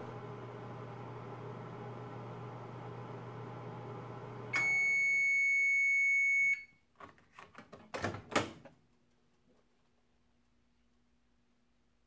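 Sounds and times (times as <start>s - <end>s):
microwave oven humming: 0.0s - 5.6s.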